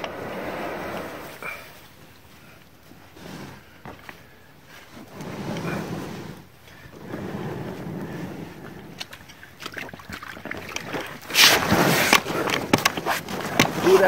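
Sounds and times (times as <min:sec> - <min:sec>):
water splashing against boat: 0:05.0 - 0:14.0.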